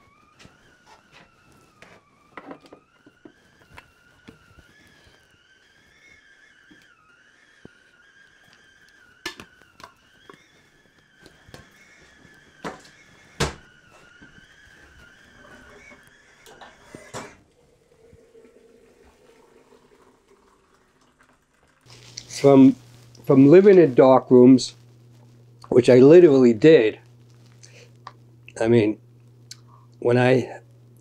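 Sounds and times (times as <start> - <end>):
faint wavering whistling tone: 0.0 - 20.9.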